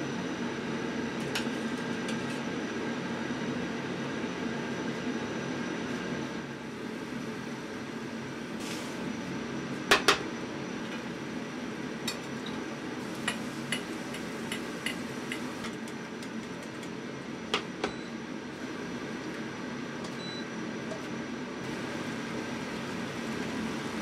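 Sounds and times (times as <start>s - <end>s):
steady hum: 6.1s - 24.0s.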